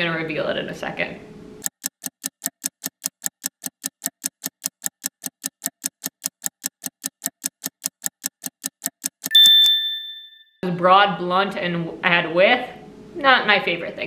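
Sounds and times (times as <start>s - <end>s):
sharp ticking clicks: 1.6s - 9.8s.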